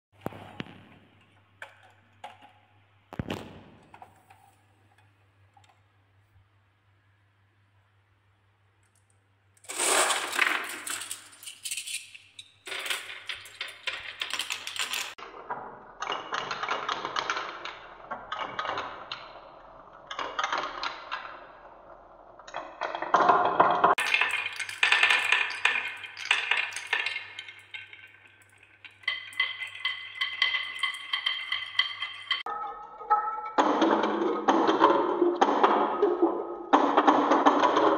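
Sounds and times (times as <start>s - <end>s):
glass marbles clattering on wood: 9.6s - 15.2s, 22.9s - 32.5s.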